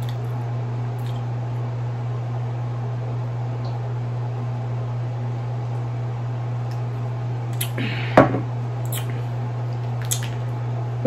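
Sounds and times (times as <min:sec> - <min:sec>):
steady low hum: 0:00.0 - 0:11.0
glass set down tap: 0:08.2 - 0:08.4.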